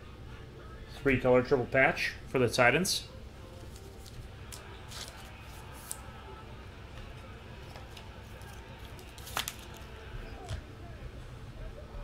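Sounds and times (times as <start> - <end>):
trading cards rustling and ticking: 3.5 - 6.2, 7.0 - 10.1.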